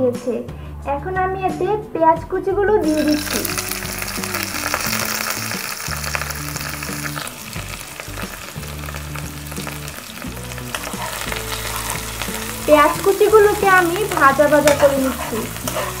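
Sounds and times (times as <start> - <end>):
onions sizzling in oil: 2.8 - 16.0.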